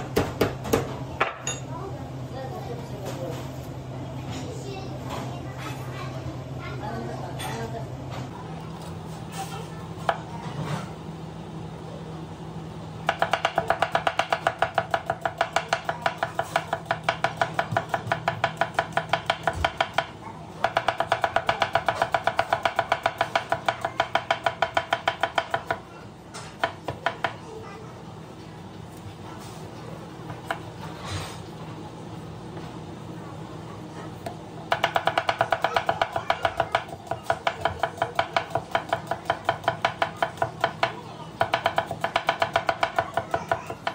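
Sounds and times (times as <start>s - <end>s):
knife chopping onion on board: 0.0s - 1.4s, 13.0s - 25.9s, 26.5s - 27.4s, 34.2s - 43.9s.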